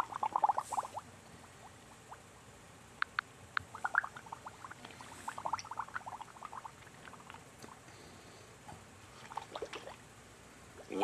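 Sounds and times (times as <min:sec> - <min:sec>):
underwater bubbling blips: 0:03.6 - 0:06.9.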